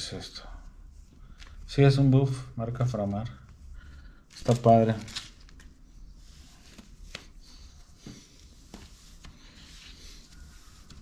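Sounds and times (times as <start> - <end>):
fabric rustling: 4.2 - 11.0.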